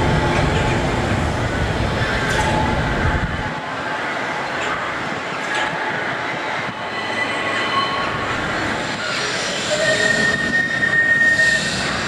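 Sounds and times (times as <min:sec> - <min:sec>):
tram wheels rumbling on track: 0:00.0 - 0:12.0
thin wheel squealing: 0:08.9 - 0:12.0.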